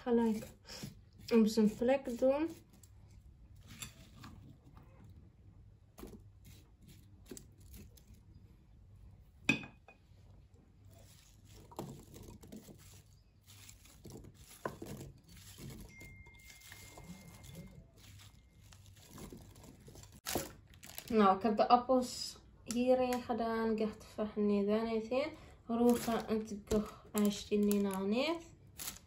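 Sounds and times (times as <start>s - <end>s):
spatula scraping glass bowl: 3.6s - 4.5s, 10.9s - 20.2s.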